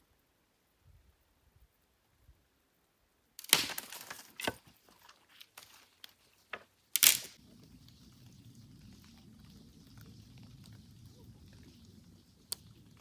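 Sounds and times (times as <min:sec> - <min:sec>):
dry branches snapping: 0:03.4 - 0:06.2, 0:06.9 - 0:07.4
twigs and leaves crackling: 0:03.4 - 0:13.0.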